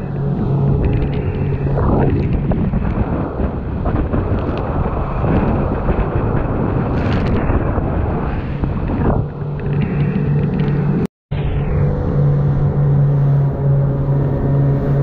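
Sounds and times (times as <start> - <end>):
water rushing past a hull: 0.0 - 11.1
wind buffeting the microphone: 0.0 - 11.1
outboard engines droning: 0.0 - 15.0.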